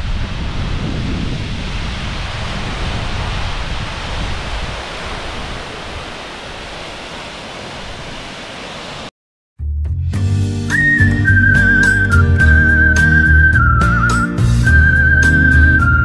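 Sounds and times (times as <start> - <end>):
wind buffeting microphone: 0.0 - 8.8
waterfall rushing: 0.0 - 9.1.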